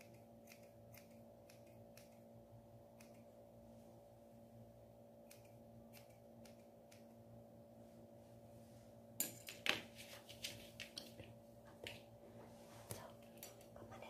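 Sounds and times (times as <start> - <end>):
scissors snipping: 0.0 - 2.3, 2.9 - 3.3, 5.2 - 7.2
steady low hum: 0.0 - 14.0.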